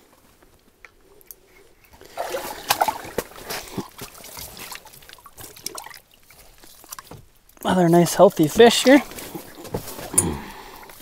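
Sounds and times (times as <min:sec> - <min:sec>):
water splashing and dripping: 0:01.9 - 0:10.2
fish thrashing in water: 0:02.0 - 0:07.6.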